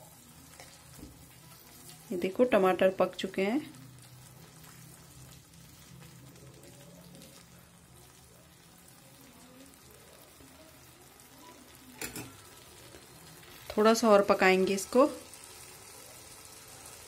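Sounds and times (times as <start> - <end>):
steel spoon stirring: 0.0 - 2.3, 12.0 - 13.0
sauce sizzling faintly: 0.0 - 17.0.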